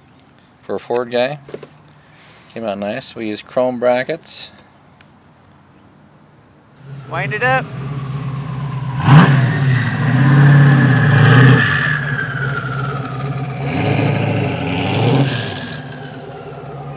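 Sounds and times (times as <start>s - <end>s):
high engine whine: 6.8s - 16.9s
sports car engine revving: 6.8s - 16.9s.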